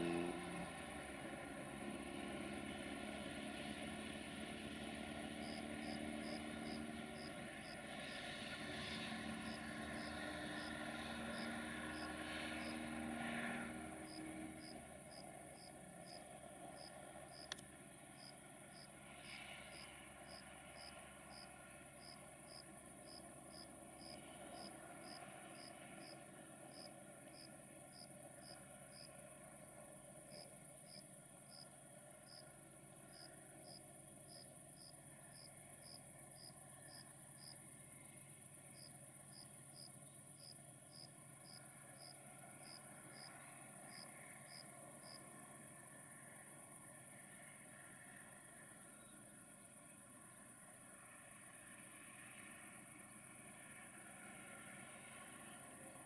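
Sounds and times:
crickets chirping: 5.1s - 56.0s.

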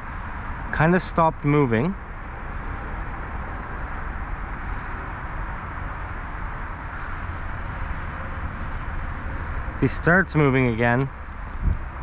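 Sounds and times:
wind noise on microphone: 11.2s - 12.0s.

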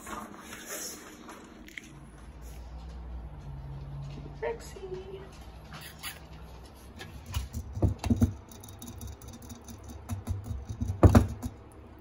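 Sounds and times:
rabbit licking metal sipper tube: 5.7s - 11.9s
rabbit clicks and taps: 6.3s - 11.8s.

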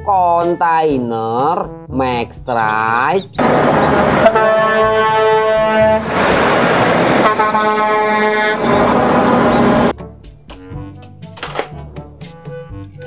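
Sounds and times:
passing truck rumble: 3.4s - 9.9s
truck air horn blasting: 3.4s - 9.9s.

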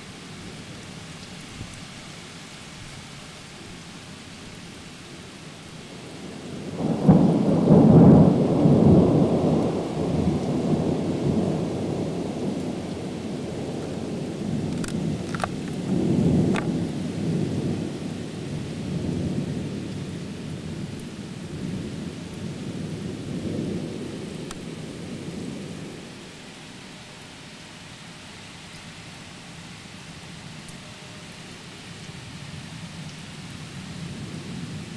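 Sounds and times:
steady rain: 0.0s - 34.9s
thunder crash and rolling rumble: 6.6s - 18.1s.

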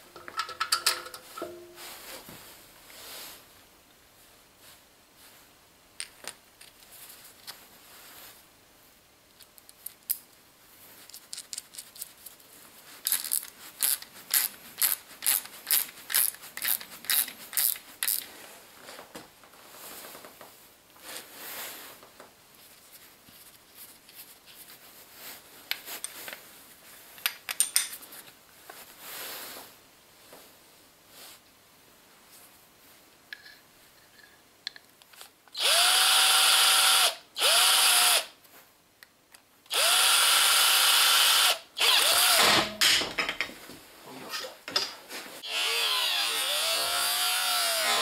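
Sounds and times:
sharp clicks of metal parts: 0.2s - 1.5s.

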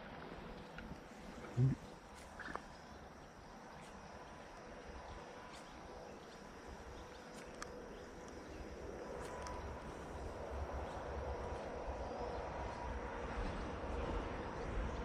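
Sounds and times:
light clicks: 7.3s - 8.4s.

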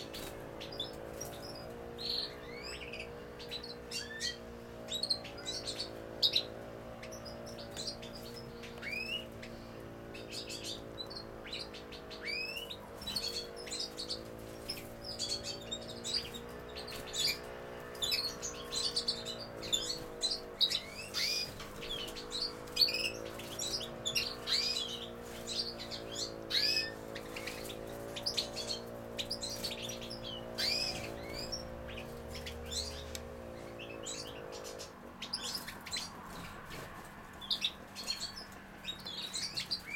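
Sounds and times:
goldfinches chirping: 0.0s - 39.9s
steady low hum: 0.0s - 39.9s.

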